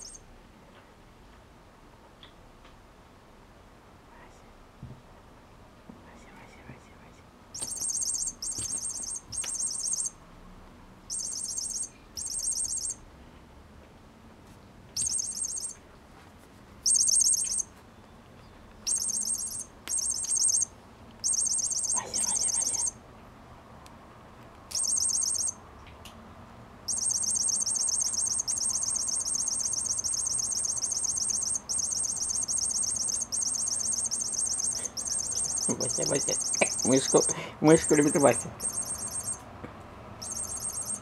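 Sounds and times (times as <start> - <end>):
high-pitched chirping trills: 0.0 - 0.2, 7.6 - 10.2, 11.1 - 13.0, 15.0 - 15.8, 16.8 - 17.8, 18.8 - 23.0, 24.7 - 25.6, 26.9 - 39.4, 40.2 - 41.0.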